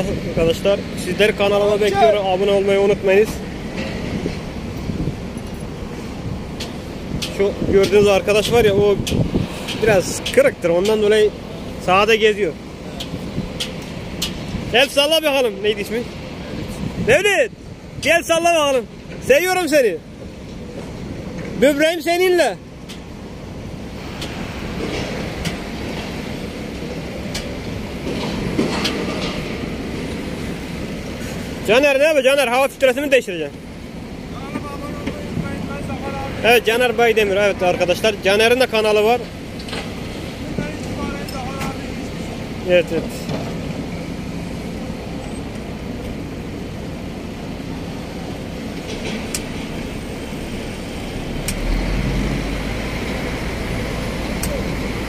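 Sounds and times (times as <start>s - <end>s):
diesel machinery rumble: 0.0s - 55.0s
metallic rattling and clanks: 27.3s - 30.2s.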